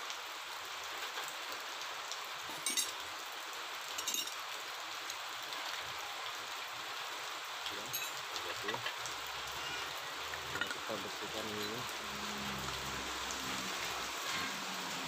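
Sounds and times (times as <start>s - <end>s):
light metal clinks: 2.5s - 3.0s, 3.9s - 4.4s, 7.8s - 8.9s.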